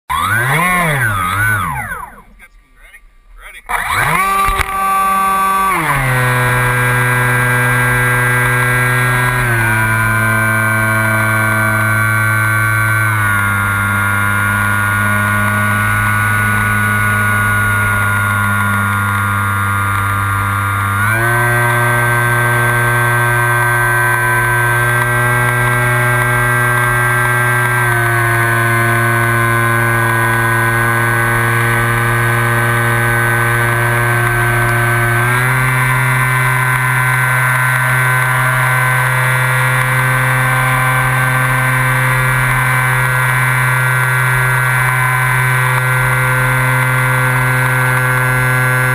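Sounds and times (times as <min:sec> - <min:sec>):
model plane electric motor whine: 0:00.1 - 0:02.4, 0:03.7 - 0:48.9.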